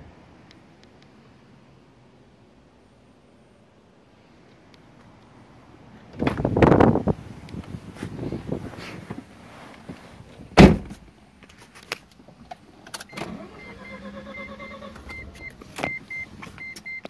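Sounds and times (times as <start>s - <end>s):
car door shutting: 6.1s - 7.0s, 10.5s - 11.0s
warning chime beeping: 13.1s - 17.0s.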